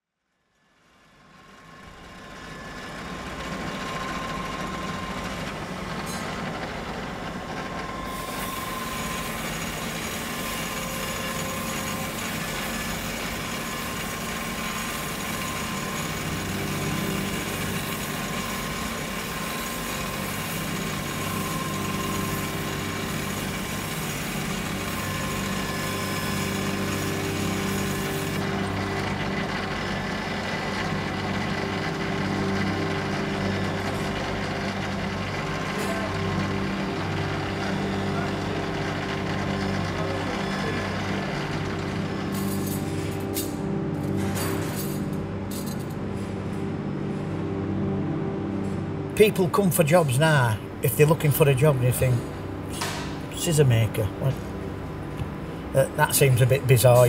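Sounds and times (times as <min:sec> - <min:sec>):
low motor hum: 0:01.2 - 0:44.4
steel grinding on wheel: 0:07.8 - 0:34.2.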